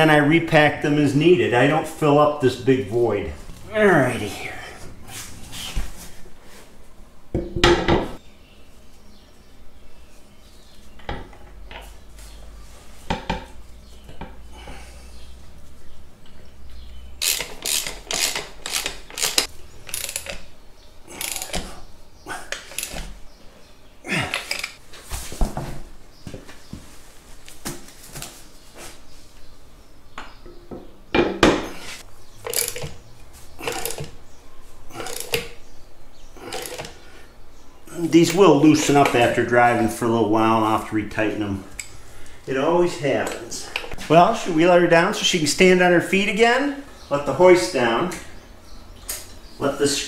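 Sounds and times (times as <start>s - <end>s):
socket ratchet clicking: 17.2s - 20.4s, 32.5s - 32.9s.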